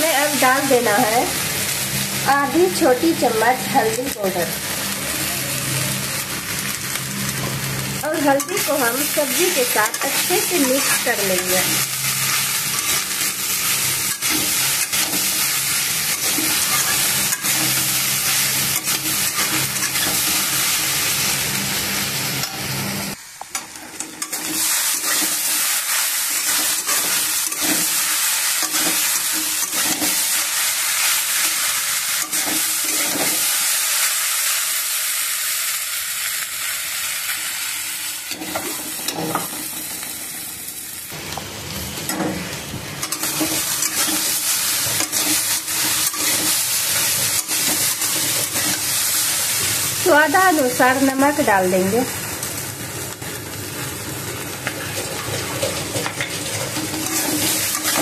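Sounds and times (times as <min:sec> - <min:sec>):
vegetables sizzling in hot oil: 0:00.0 - 0:58.0
spatula scraping and tapping pan: 0:54.6 - 0:58.0.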